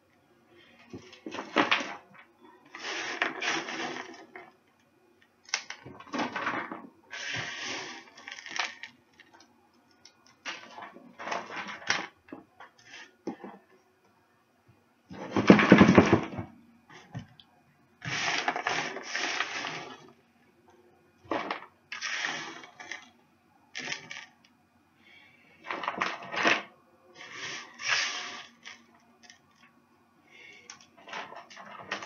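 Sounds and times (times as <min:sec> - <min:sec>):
granola rattling into tub: 0:15.1 - 0:16.5.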